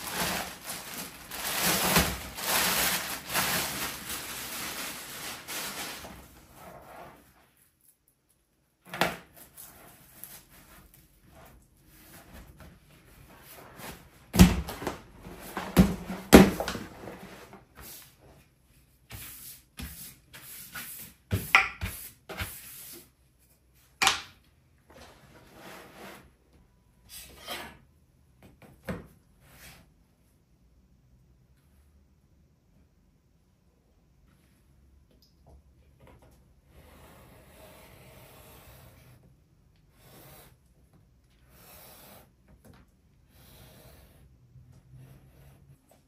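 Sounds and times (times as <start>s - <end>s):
rubbing and shuffling of material: 0.0s - 8.1s.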